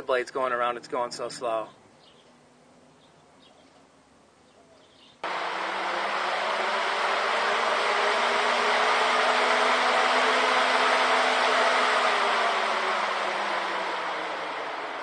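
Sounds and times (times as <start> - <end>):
fan rushing air and motor hum: 5.2 - 15.0.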